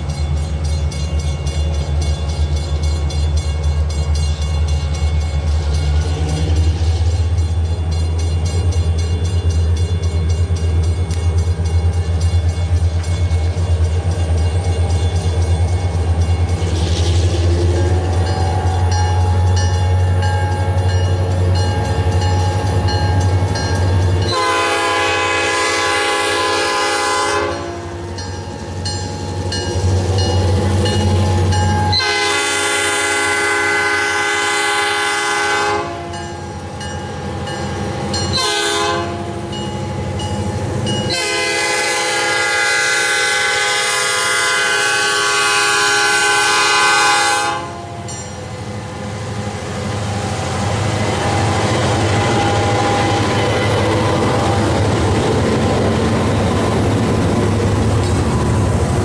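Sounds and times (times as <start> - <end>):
crossing bell ringing: 0.0 - 33.5, 35.6 - 44.3, 47.5 - 58.3
locomotive air horn blasts: 24.2 - 28.0, 31.9 - 36.2, 38.3 - 39.4, 41.1 - 48.0.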